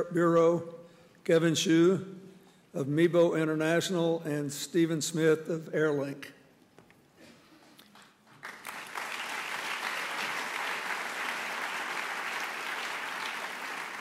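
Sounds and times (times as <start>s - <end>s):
audience applauding: 8.3s - 14.0s.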